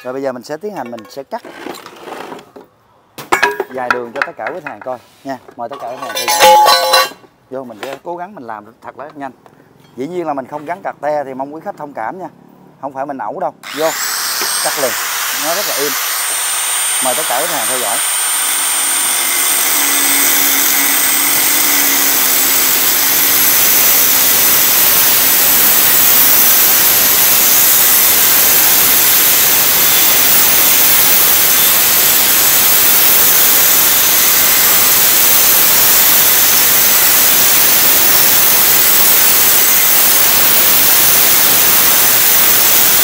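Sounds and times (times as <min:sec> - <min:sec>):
grinder disc cutting hiss: 0:05.8 - 0:07.2, 0:13.6 - 0:43.0.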